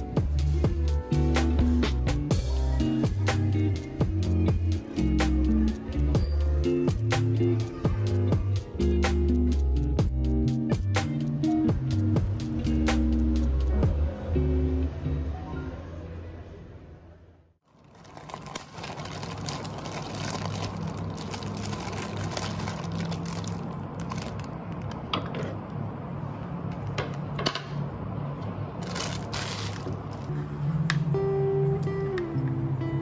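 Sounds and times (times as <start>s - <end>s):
plastic bag crinkling: 17.6s - 25.0s, 28.8s - 30.3s
acoustic guitar music: 30.3s - 33.0s.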